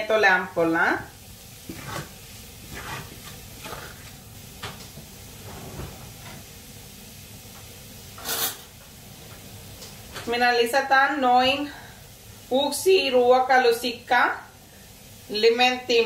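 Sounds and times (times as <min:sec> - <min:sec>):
low sizzle from pan: 0:00.0 - 0:16.0
spoon scraping frying pan: 0:01.6 - 0:04.1, 0:08.2 - 0:08.7.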